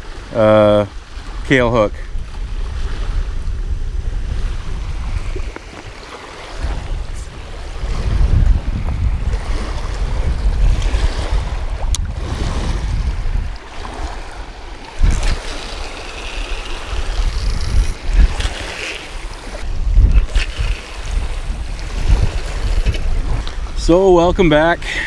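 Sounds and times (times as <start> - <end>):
wind buffeting microphone: 0.0 - 25.0
small waves lapping on rocks: 10.8 - 19.7.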